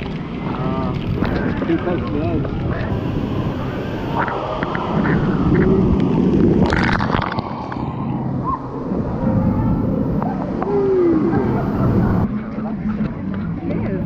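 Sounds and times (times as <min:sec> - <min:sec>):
waterfall rushing: 0:02.9 - 0:05.4.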